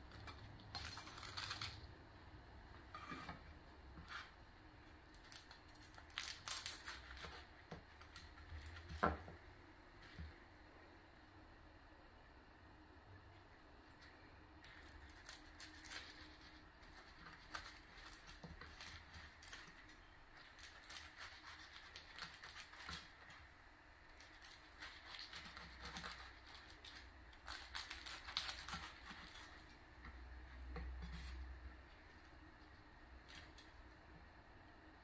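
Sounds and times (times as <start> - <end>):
crackling crust being sliced: 0.0 - 1.9, 5.1 - 9.2, 14.6 - 23.5, 24.1 - 31.5.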